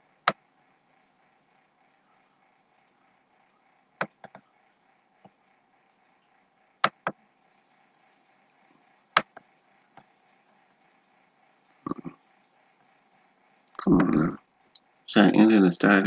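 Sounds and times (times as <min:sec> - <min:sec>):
faint steady hum: 0:00.0 - 0:16.0
computer mouse clicks: 0:04.0 - 0:04.5, 0:06.8 - 0:07.2, 0:08.5 - 0:10.2.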